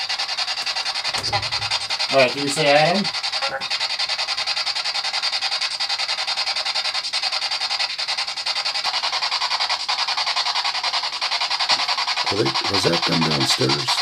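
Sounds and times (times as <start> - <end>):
pulsing radio static: 1.1 - 3.7, 12.3 - 14.0.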